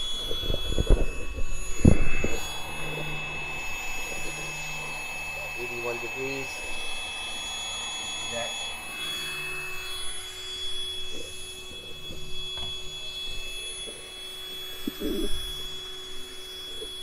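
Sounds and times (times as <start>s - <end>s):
wind noise on microphone: 0.0s - 2.7s
faint high-pitched tone: 0.0s - 17.0s.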